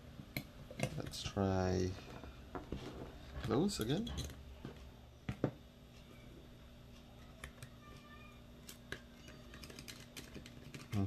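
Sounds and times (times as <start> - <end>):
plastic parts clicking: 8.7 - 11.0.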